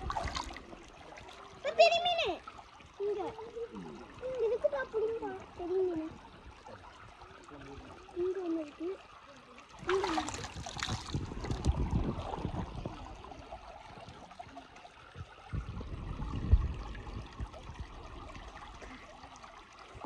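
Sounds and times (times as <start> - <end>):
water splashing and trickling: 0.0 - 20.0
dull low thumps: 10.6 - 13.1, 15.2 - 18.8.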